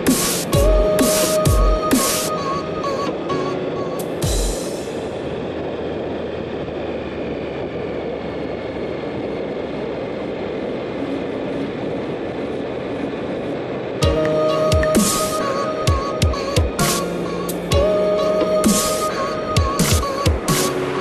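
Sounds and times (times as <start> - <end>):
rushing wind: 0.0 - 21.0
bicycle tyre noise on road: 2.0 - 14.0.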